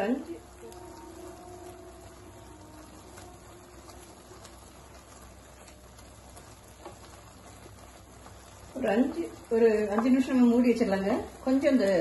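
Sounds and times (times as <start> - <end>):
wet stirring: 0.0 - 12.0
spatula tapping pan: 3.9 - 10.9.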